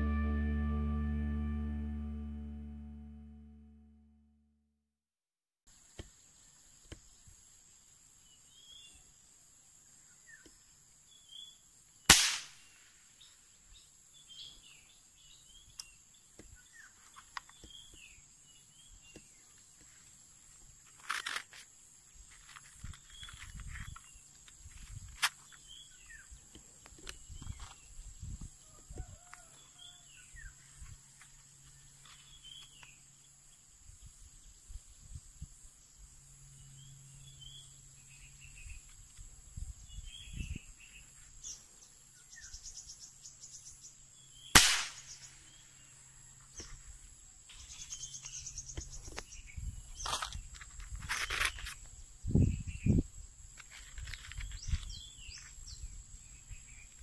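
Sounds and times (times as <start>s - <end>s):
insect droning: 5.7s - 57.0s
toy gun firing snap: 12.1s - 12.6s, 44.6s - 45.0s.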